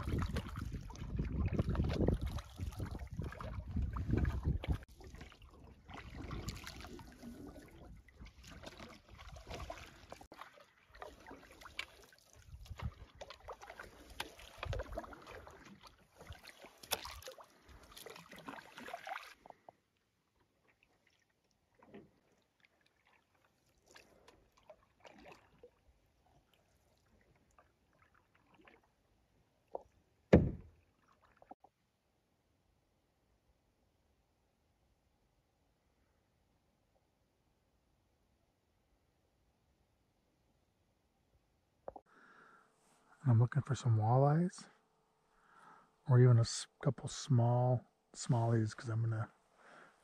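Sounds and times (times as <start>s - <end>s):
wind noise: 0.0s - 4.8s
canoe paddle strokes in water: 0.0s - 31.6s
loud thump: 30.3s - 30.7s.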